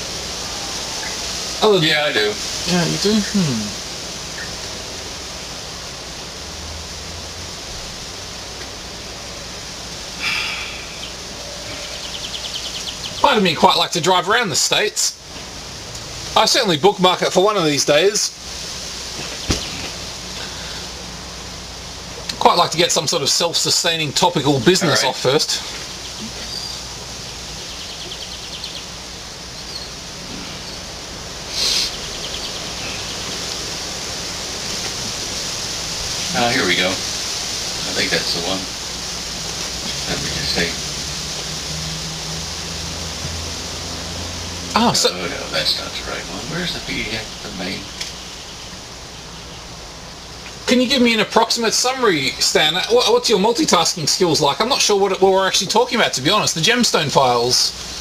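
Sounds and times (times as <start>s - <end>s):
faint bird twittering: 0.0s - 4.8s, 10.1s - 14.8s, 19.2s - 21.0s, 24.6s - 34.1s
steady background hiss: 0.0s - 58.0s.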